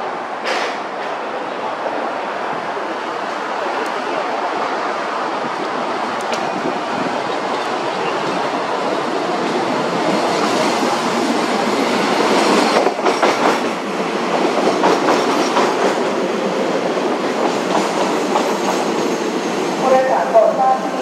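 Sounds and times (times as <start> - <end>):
train wheels rumbling on rail: 0.0 - 21.0
rail joint clacks: 0.4 - 1.3, 5.6 - 16.2, 16.8 - 20.2.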